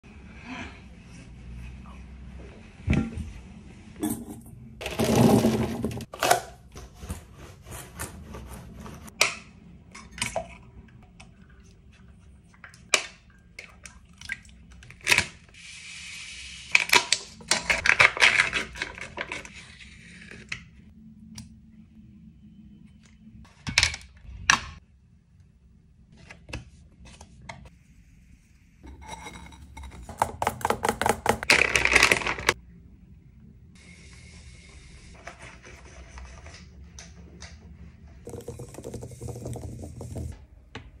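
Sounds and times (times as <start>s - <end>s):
spoon scraping inside cup: 28.8s - 30.3s.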